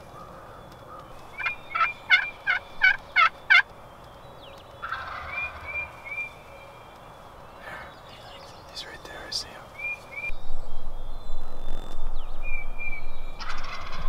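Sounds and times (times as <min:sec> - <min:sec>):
turkey yelping: 0:01.4 - 0:03.7, 0:04.8 - 0:06.3, 0:13.4 - 0:14.0.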